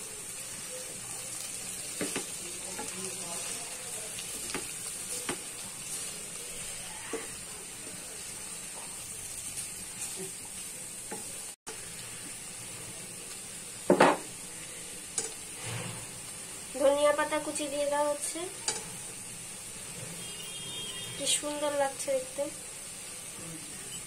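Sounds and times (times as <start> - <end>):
vegetables sizzling in a pan: 0.0 - 24.0
spatula stirring: 1.6 - 11.9.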